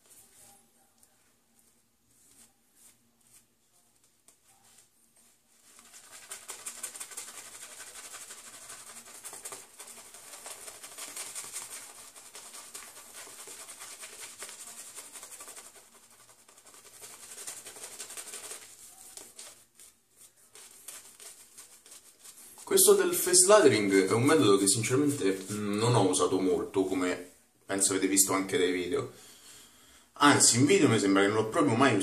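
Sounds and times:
shaving brush swishing on face: 0:04.3 - 0:25.5.

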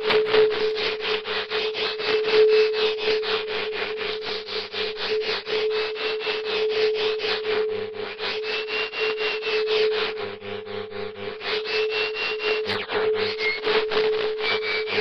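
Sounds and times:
steady electronic tone: 0:12.6 - 0:15.0
faint wavering high tone: 0:12.7 - 0:15.0.

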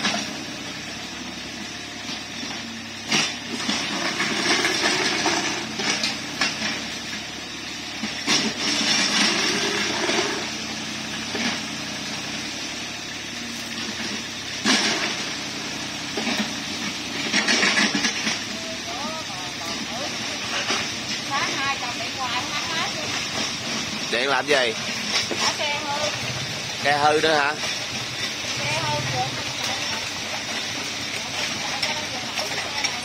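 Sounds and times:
excavator diesel engine droning: 0:00.0 - 0:33.0.

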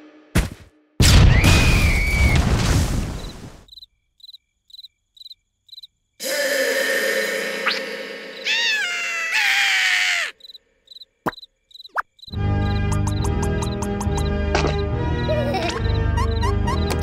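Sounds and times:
cartoon crash with rumble: 0:01.0 - 0:03.5
cricket chirps: 0:01.6 - 0:06.2, 0:07.7 - 0:16.9.

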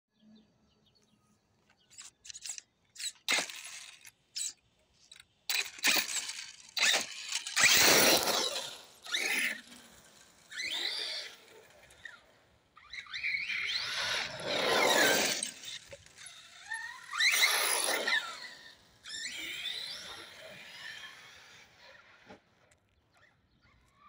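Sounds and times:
electric motor whining: 0:05.5 - 0:12.2, 0:12.8 - 0:22.3
tyres squealing on asphalt: 0:12.8 - 0:21.6.

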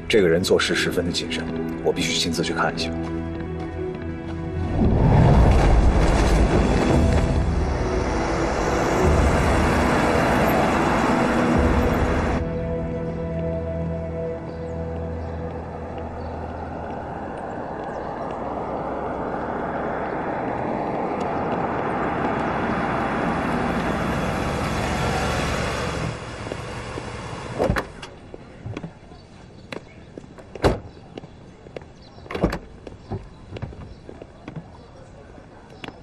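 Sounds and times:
car engine and tyre noise: 0:03.2 - 0:13.6, 0:14.2 - 0:36.0
car door clunks and clicks: 0:30.6 - 0:30.9.

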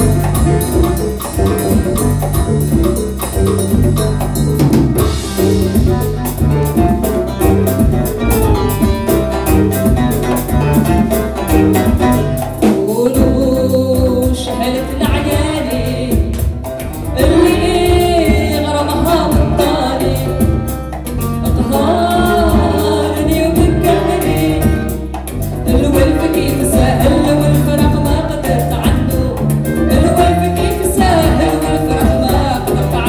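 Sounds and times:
live band playing tango: 0:00.0 - 0:33.0.

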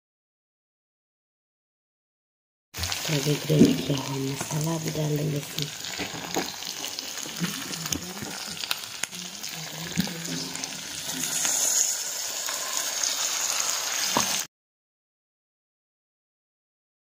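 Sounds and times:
chicken sizzling in a wok: 0:02.8 - 0:14.5
spice paste poured onto hot meat: 0:10.6 - 0:14.5.

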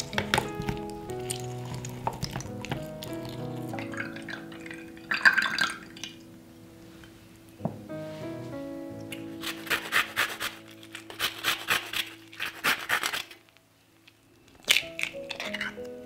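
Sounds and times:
soft background music: 0:00.0 - 0:16.0
kitchen tool rasping strokes: 0:09.4 - 0:13.4.

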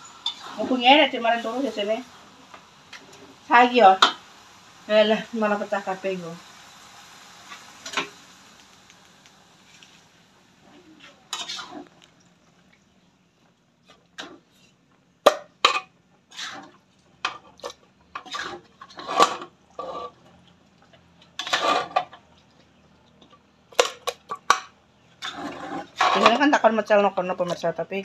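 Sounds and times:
metal spatula scraping a wok: 0:00.0 - 0:02.0, 0:10.6 - 0:12.0, 0:15.6 - 0:20.3, 0:21.3 - 0:22.2, 0:25.2 - 0:26.8.

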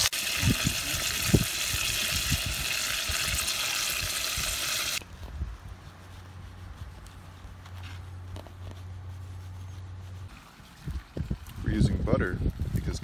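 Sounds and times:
meat sizzling in a pot: 0:00.0 - 0:05.0.

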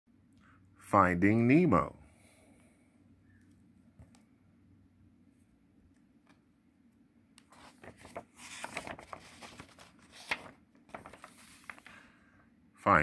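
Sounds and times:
paper page turning: 0:07.4 - 0:12.1.

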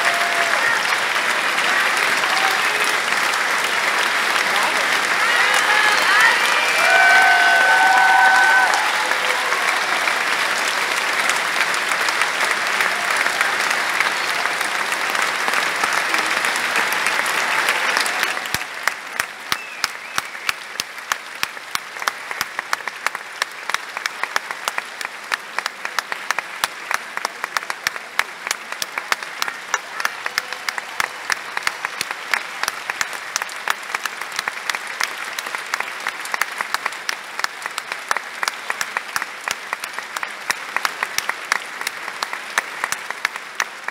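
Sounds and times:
audience applauding: 0:00.0 - 0:43.9
rhythmic clapping: 0:00.0 - 0:43.9.

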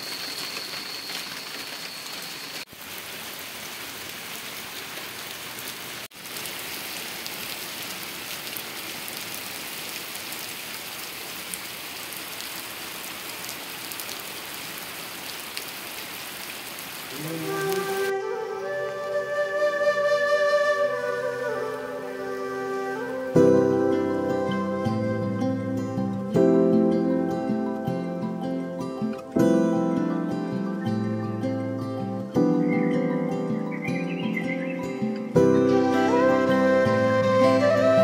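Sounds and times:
rain on stone paving: 0:00.0 - 0:38.0
flute music: 0:17.1 - 0:27.9, 0:32.3 - 0:38.0.

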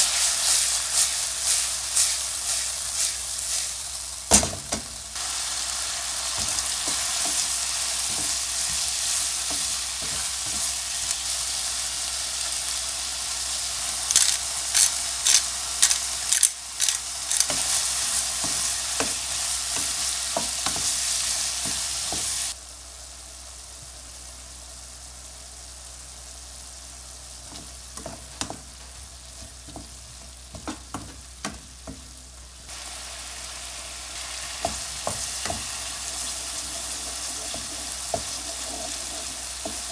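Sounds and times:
meat sizzling in a frying pan: 0:00.0 - 0:39.9
wooden spatula knocking on pan: 0:29.4 - 0:32.1.

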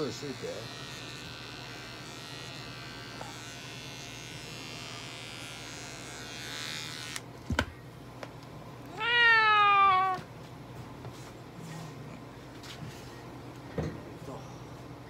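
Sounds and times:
electric clippers buzzing: 0:00.0 - 0:07.3
cat meowing: 0:08.9 - 0:10.3.

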